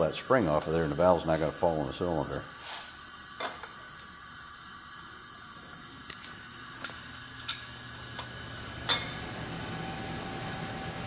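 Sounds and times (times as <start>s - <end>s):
compressed air hissing: 0.0s - 7.1s.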